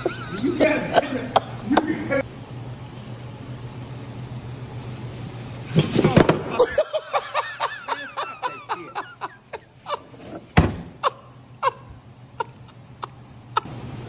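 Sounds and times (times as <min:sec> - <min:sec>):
person laughing: 0:00.0 - 0:02.2, 0:06.4 - 0:13.7.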